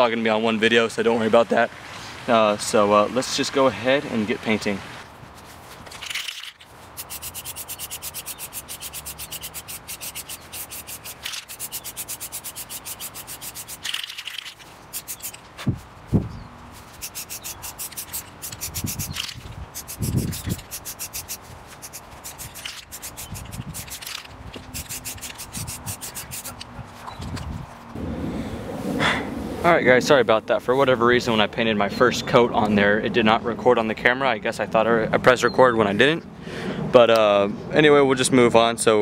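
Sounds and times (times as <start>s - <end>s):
spray-paint can hissing: 7.0s - 14.2s, 14.8s - 15.4s, 16.9s - 26.6s.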